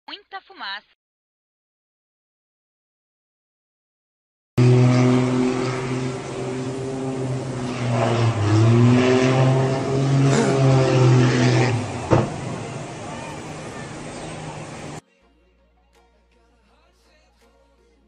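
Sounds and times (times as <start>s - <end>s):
small aircraft engine droning: 4.6s - 15.0s.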